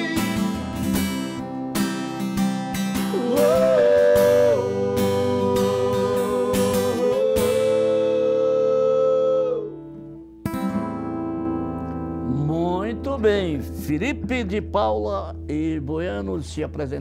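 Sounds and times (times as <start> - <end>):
men singing: 0.0 - 0.8, 3.1 - 9.8
acoustic guitar strumming: 0.0 - 16.6.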